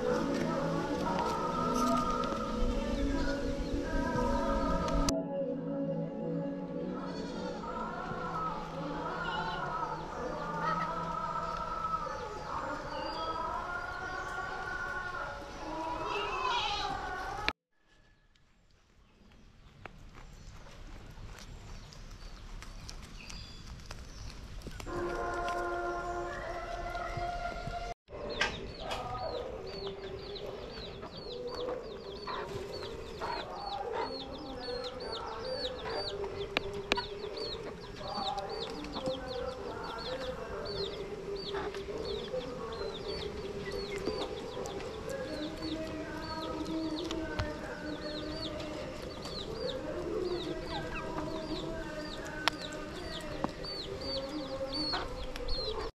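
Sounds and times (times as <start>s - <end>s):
chickens clucking: 7.0s - 17.5s, 24.8s - 55.9s.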